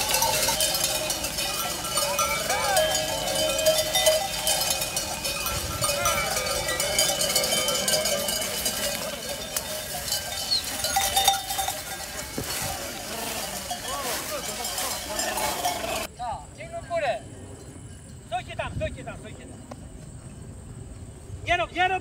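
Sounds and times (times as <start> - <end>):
sheep bells clinking and ringing: 0.0 - 16.2, 17.5 - 18.8.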